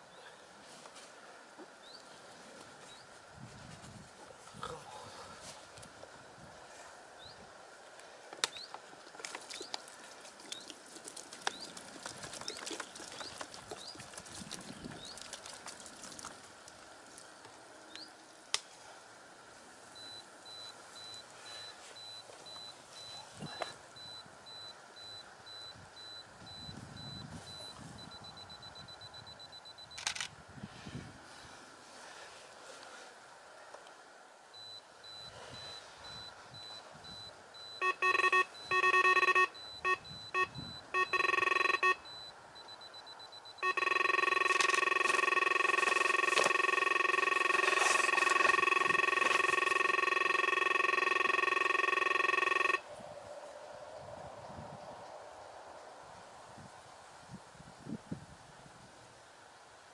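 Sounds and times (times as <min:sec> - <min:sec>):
high-pitched electronic beeping: 0:34.6 - 0:52.8.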